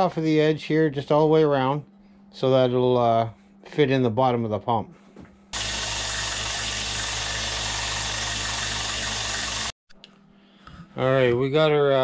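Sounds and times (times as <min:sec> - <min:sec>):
belt sander grinding steel pipe: 0:05.6 - 0:09.7.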